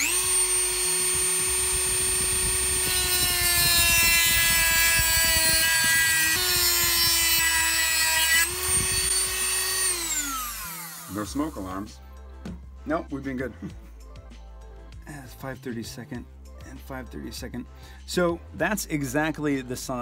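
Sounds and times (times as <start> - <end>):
rotary tool whining: 0.0 - 11.6.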